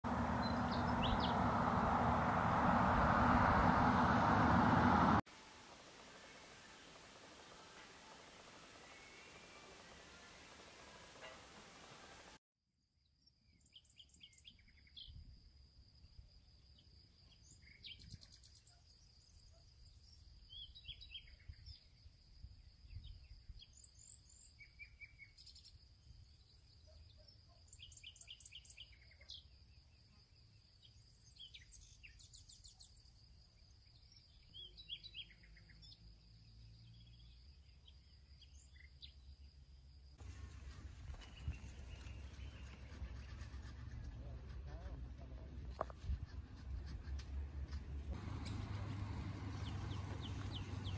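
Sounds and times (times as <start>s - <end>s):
low rumble: 0.0s - 5.2s
birds chirping and trilling: 0.1s - 5.0s, 40.3s - 44.2s, 48.2s - 50.9s.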